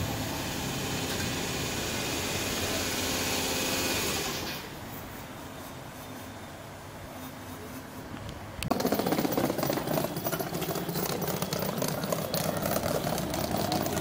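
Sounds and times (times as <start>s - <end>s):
train wheels clattering: 8.7s - 14.0s.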